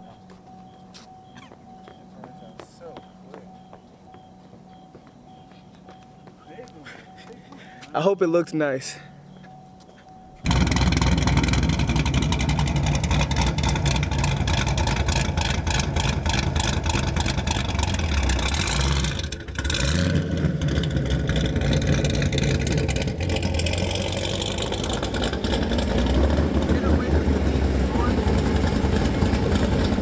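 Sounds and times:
car engine at high revs: 0:10.4 - 0:30.0.

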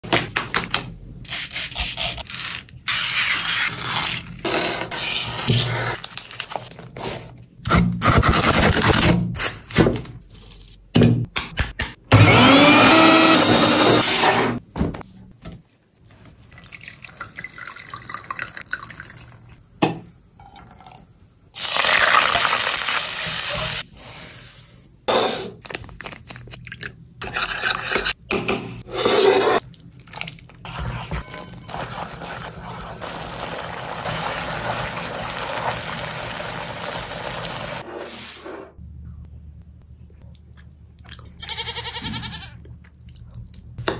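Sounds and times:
liquid sounds: 0:29.2 - 0:37.8.

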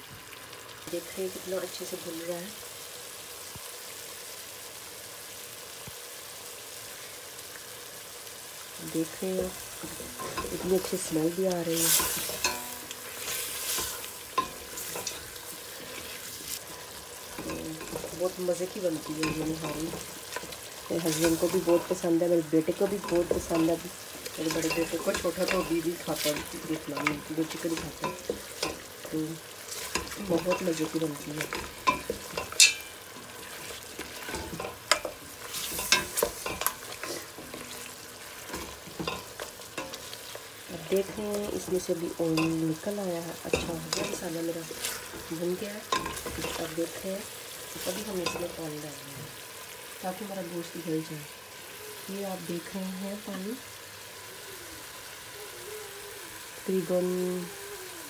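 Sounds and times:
meat sizzling in oil: 0:00.0 - 0:58.0
wooden spatula scraping a pot: 0:09.7 - 0:22.0, 0:22.6 - 0:42.6, 0:43.4 - 0:47.0
spatula scraping and knocking pot: 0:11.8 - 0:18.4, 0:29.7 - 0:40.4.

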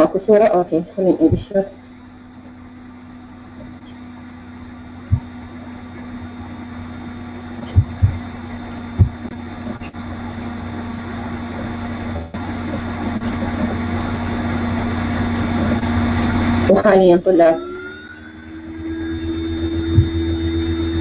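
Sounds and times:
electrical hum: 0:00.0 - 0:21.0
dull thumps: 0:05.1 - 0:06.1, 0:07.6 - 0:10.3.

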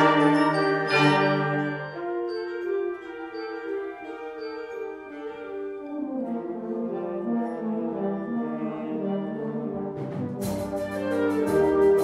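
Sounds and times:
wind band playing chords: 0:00.0 - 0:12.0
percussion strikes: 0:09.9 - 0:12.0.

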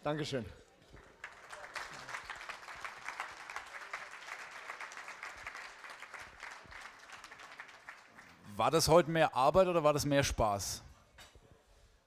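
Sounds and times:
crowd clapping: 0:00.9 - 0:09.0.

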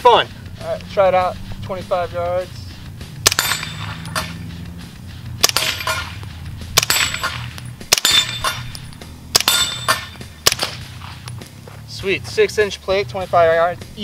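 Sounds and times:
suppressed gunshots: 0:03.1 - 0:04.4, 0:05.3 - 0:11.5
bullet clanging on steel plate: 0:03.2 - 0:04.5, 0:05.4 - 0:11.5.

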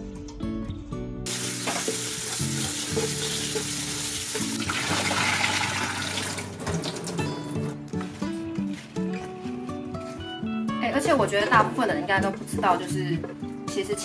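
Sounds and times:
tap water splashing into pot: 0:01.3 - 0:07.2.

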